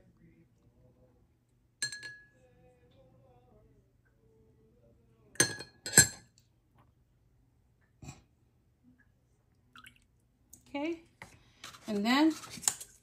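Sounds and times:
spoon clinking on glass: 0:01.8 - 0:02.4.

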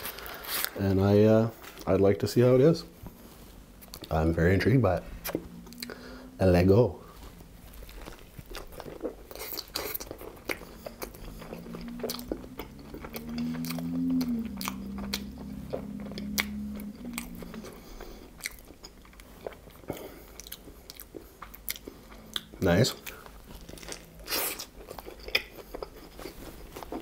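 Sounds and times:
mouth chewing with wet smacks: 0:03.8 - 0:04.2, 0:07.4 - 0:27.0
person humming mmm: 0:03.9 - 0:07.5, 0:10.4 - 0:18.7.

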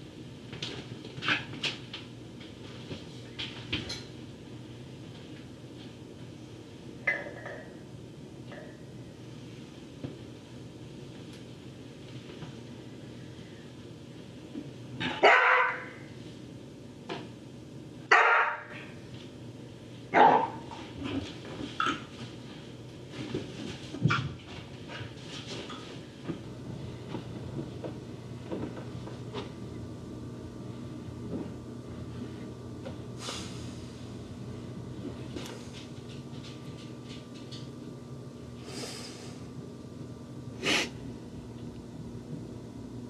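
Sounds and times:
dog barking: 0:15.0 - 0:16.0, 0:18.1 - 0:18.8, 0:20.2 - 0:20.7.

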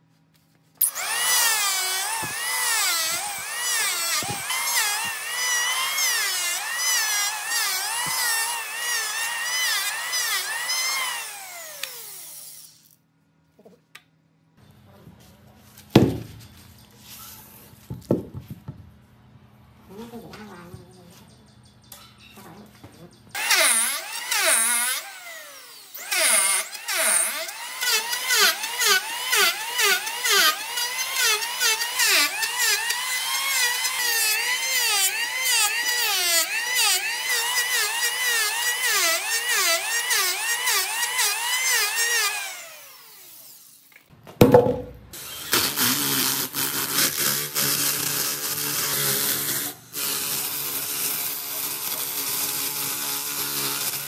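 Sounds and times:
electric hand planer shaving wood: 0:00.8 - 0:12.8, 0:23.4 - 0:43.7, 0:45.2 - 0:54.0.

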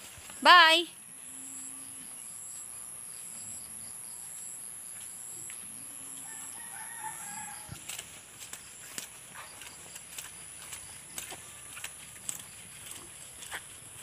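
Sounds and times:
rooster crowing: 0:06.2 - 0:07.8.

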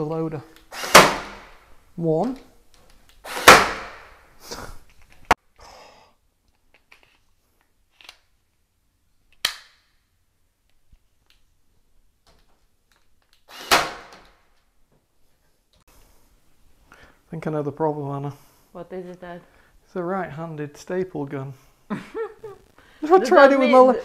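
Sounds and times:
staple gun firing into wood: 0:00.7 - 0:01.4, 0:03.3 - 0:04.0, 0:13.5 - 0:14.3.

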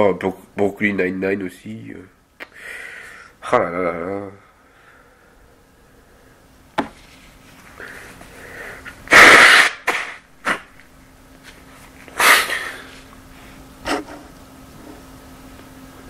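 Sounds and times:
person sneezing: 0:12.1 - 0:13.0.

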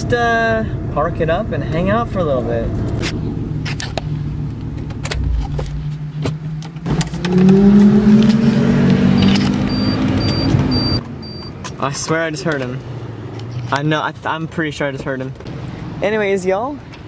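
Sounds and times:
car engine running: 0:01.6 - 0:11.0.

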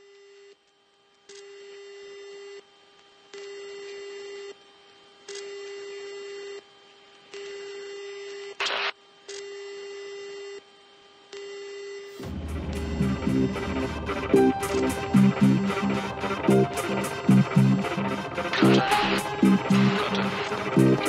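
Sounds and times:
radio static hiss: 0:08.5 - 0:09.0, 0:18.5 - 0:21.0
electronic alert tone: 0:12.2 - 0:21.0.

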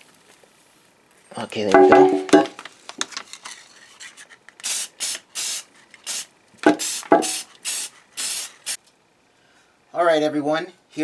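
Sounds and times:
spray paint can hissing: 0:04.6 - 0:08.8.

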